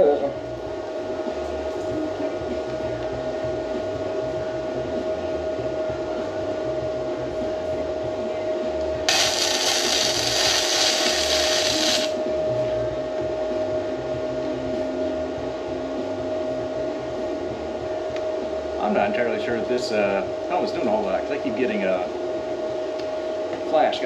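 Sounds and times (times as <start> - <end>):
steady whine: 0.0 - 24.0
welding arc crackling: 9.1 - 12.2.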